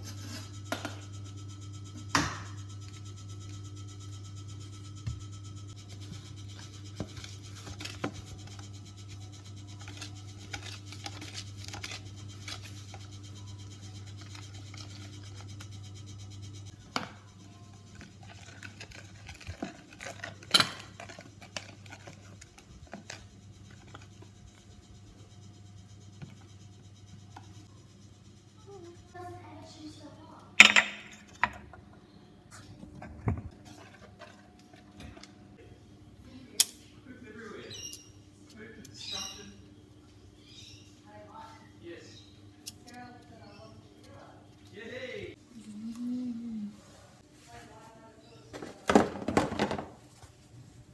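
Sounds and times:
steady low hum: 0:00.0 - 0:48.5
whisk scraping plastic bowl: 0:17.9 - 0:24.6.

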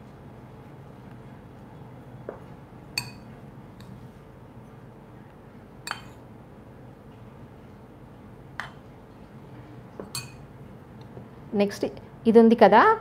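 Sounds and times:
metal spoon clinking on metal cups: 0:10.0 - 0:10.5.

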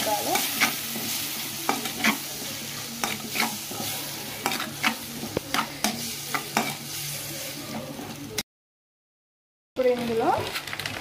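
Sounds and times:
vegetables sizzling in oil: 0:00.0 - 0:08.4.

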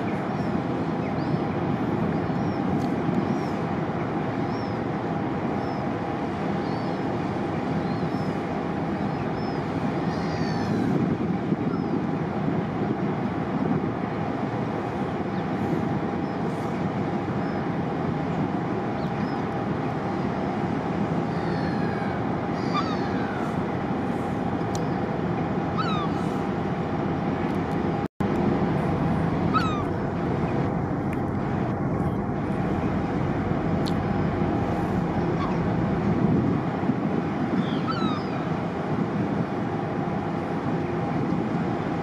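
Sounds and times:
gulls calling: 0:00.0 - 0:12.1, 0:14.3 - 0:26.9, 0:28.8 - 0:40.4
diesel engines rumbling: 0:17.8 - 0:42.0.

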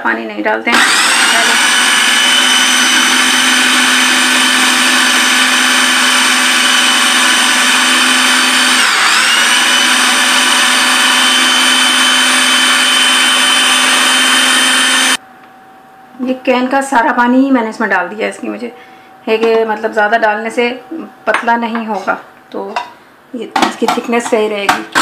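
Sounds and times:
blender running at high speed: 0:00.7 - 0:15.2.

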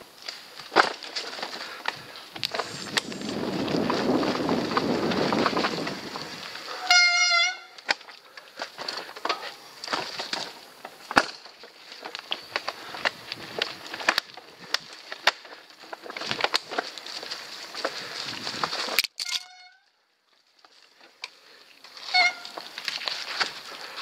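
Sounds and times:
mountain bike clattering over rocks: 0:00.1 - 0:19.7, 0:20.3 - 0:24.0
bicycle disc brake squealing: 0:06.7 - 0:07.9, 0:19.2 - 0:19.9, 0:22.0 - 0:22.6.

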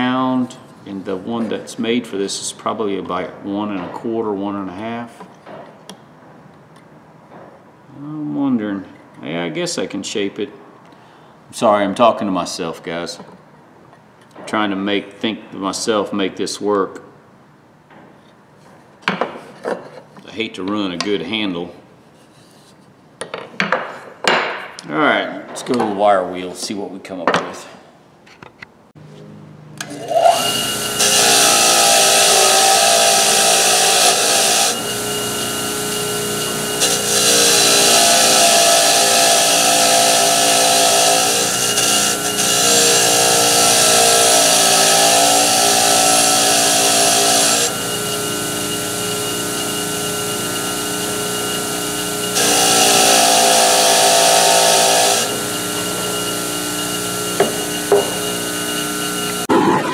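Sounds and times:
bench grinder motor hum: 0:29.8 - 0:59.6.

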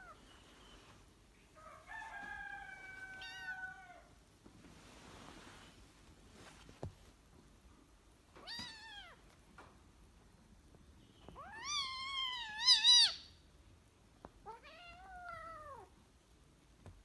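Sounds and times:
kitten meowing: 0:08.4 - 0:09.2, 0:11.3 - 0:13.3.

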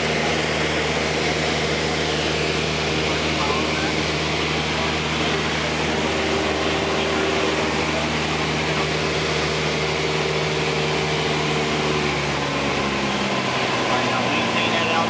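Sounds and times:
light airplane engine droning: 0:00.0 - 0:15.0.

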